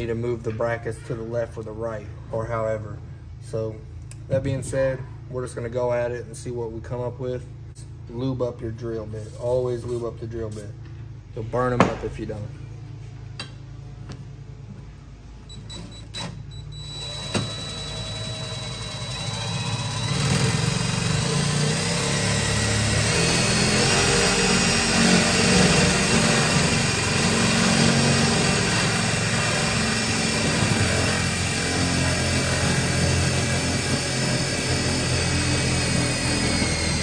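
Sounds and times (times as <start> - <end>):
cordless drill boring through steel: 16.8 - 37.0.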